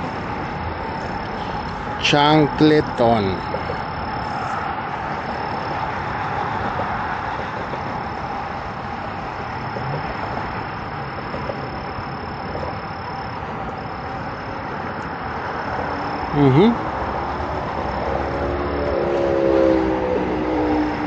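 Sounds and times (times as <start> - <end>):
high insect trill: 0.0 - 21.0
steady rushing background noise: 0.0 - 21.0.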